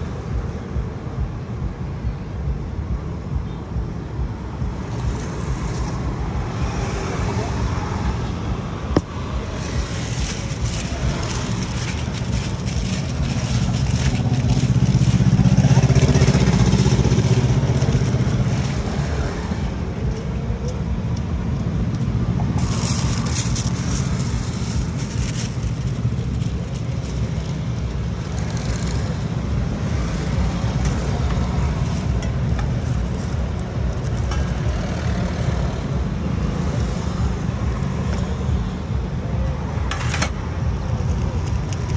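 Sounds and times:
roadside traffic noise: 0.0s - 41.9s
vehicle passing: 4.8s - 41.9s
aluminium foil crinkling: 9.5s - 19.4s, 22.6s - 29.3s, 30.2s - 35.4s, 40.9s - 41.9s.

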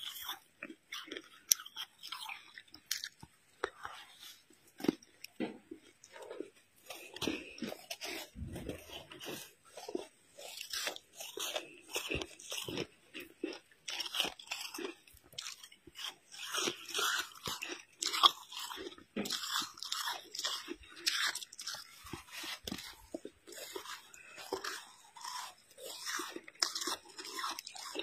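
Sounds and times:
snow crunching while chewed: 0.0s - 28.0s.

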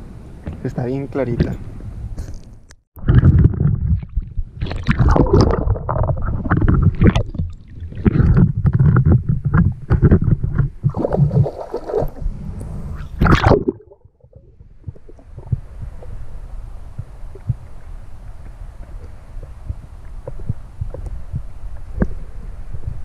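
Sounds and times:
water sloshing and splashing: 3.0s - 16.2s
sharp splash: 10.9s - 12.3s, 12.9s - 14.0s.

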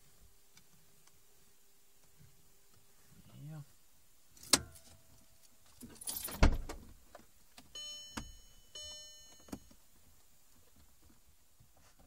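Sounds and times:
electronic beeps: 7.8s - 9.7s.

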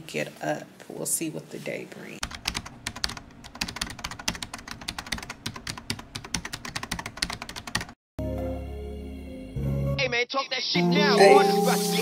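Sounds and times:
rapid clicking taps: 2.2s - 8.0s.

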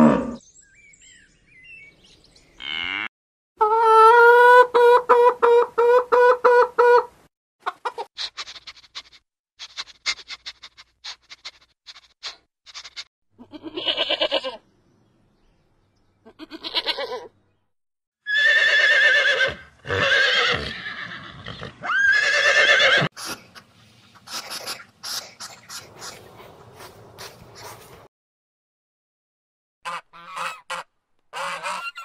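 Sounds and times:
horses whinnying: 18.3s - 23.1s.

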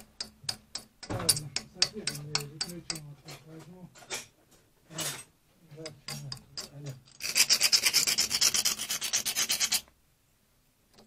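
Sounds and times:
scrubbing a metal pipe: 5.8s - 9.9s.

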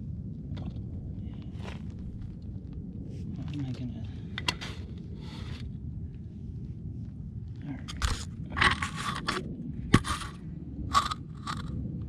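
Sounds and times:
low steady rumble: 0.0s - 12.0s
gravel and dirt crunching: 1.3s - 2.4s.

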